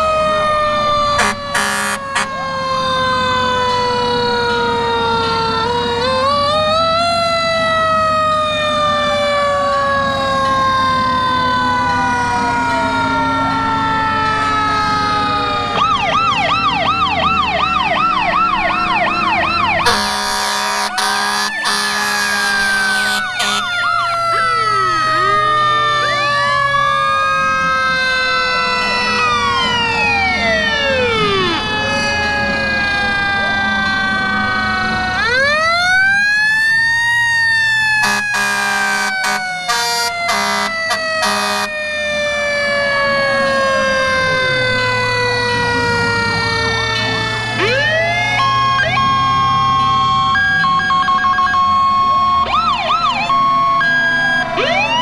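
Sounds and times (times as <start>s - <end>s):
fast warbling siren: 0.0s - 55.0s
fire engine sirens wailing: 0.0s - 55.0s
loud horn blast: 1.2s - 2.4s, 19.8s - 23.9s, 38.0s - 41.8s.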